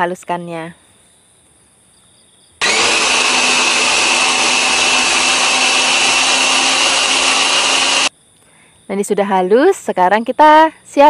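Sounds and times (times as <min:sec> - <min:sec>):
electric chopper motor whirring: 0:02.6 - 0:08.1.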